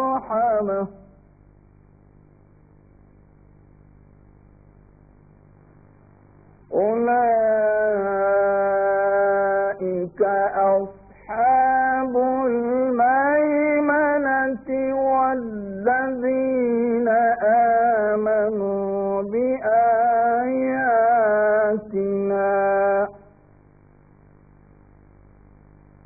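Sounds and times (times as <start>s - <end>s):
man reciting melodically: 0.0s - 1.1s, 6.7s - 23.3s.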